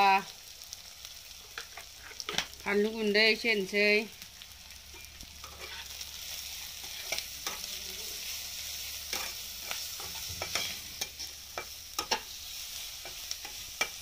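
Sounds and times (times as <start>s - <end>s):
food sizzling in hot oil: 0.0s - 14.0s
spatula scraping a pan: 5.0s - 14.0s.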